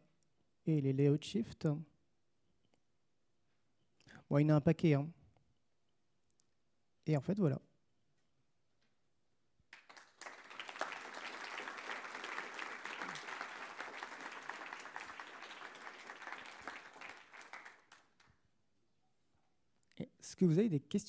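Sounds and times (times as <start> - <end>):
audience applauding: 9.7 - 18.3.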